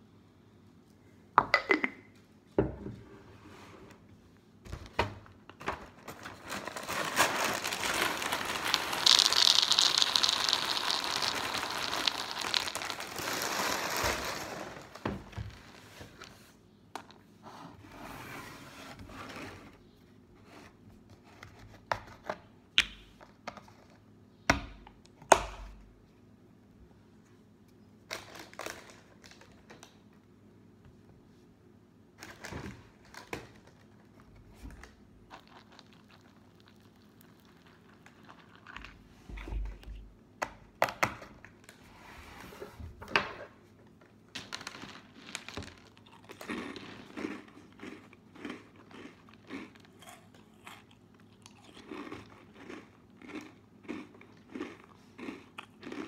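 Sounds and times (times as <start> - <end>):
plastic bag crinkling: 5.8 - 16.3, 35.3 - 39.1, 44.3 - 47.8.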